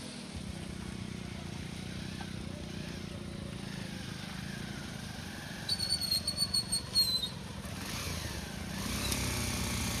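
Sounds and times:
motorcycle engines running: 0.0s - 10.0s
high trilling whistle: 5.7s - 7.3s.

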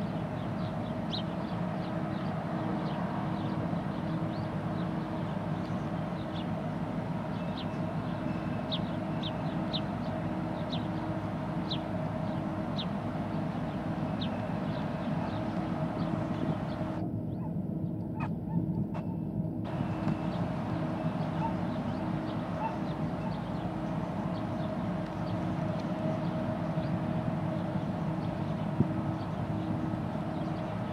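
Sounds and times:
ship engines humming: 0.0s - 30.9s.

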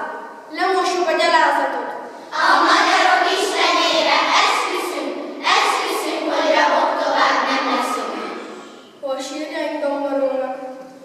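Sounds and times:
children chanting in unison: 2.3s - 8.8s.

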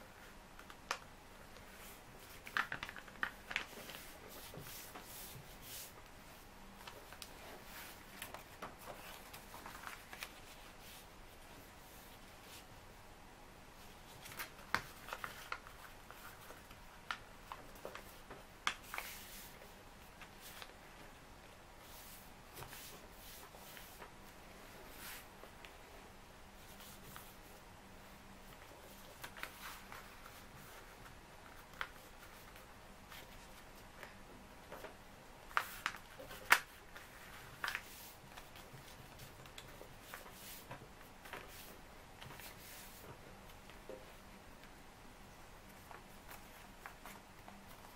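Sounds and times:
paper folding and crinkling: 0.2s - 12.7s, 13.8s - 21.1s, 28.4s - 44.2s, 45.7s - 47.9s.

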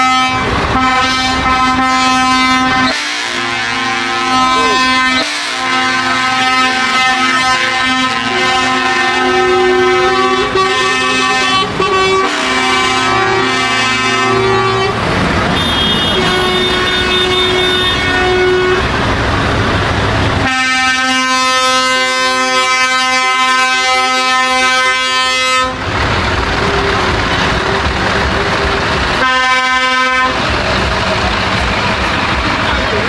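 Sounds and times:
truck air horns chords: 0.0s - 33.0s
rough rushing noise with rumble: 25.6s - 33.0s.

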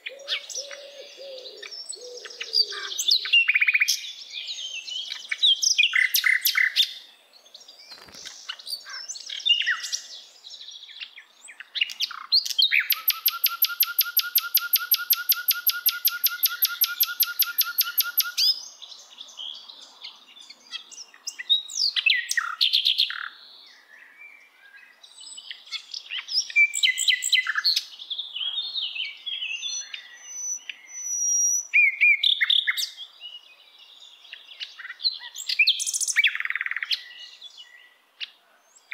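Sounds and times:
songbird chirping and twittering: 0.0s - 38.9s
rapid bird trill: 12.7s - 18.5s.

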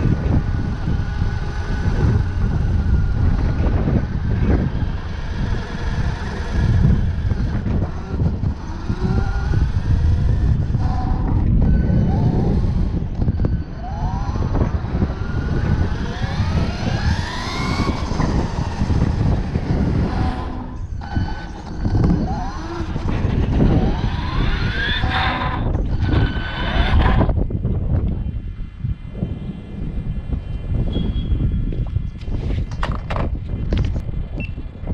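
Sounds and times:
rc car motor whining: 0.0s - 27.4s.

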